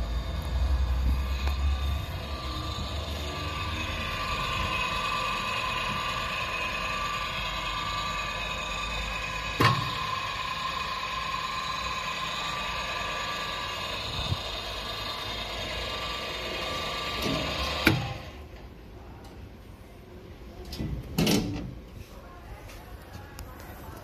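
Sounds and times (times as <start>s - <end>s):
electric motor whine: 0.0s - 18.4s.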